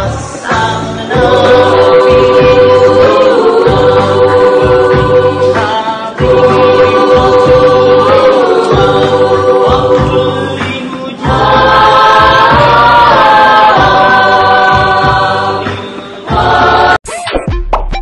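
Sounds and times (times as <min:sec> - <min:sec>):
choir singing devotional song: 0:00.0 - 0:17.0.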